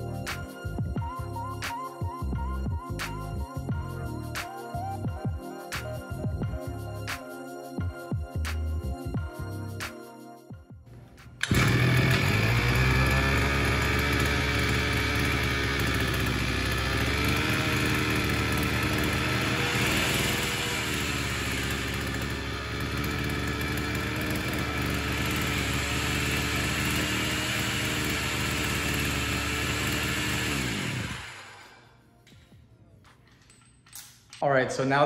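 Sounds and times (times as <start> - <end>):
outboard engine running: 11.4 - 31.6.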